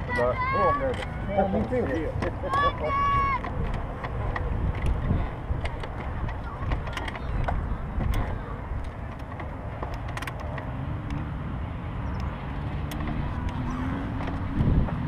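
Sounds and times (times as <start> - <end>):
dirt bike engine rumble: 1.0 - 15.0
sharp clicks and knocks: 3.3 - 11.3, 12.1 - 15.0.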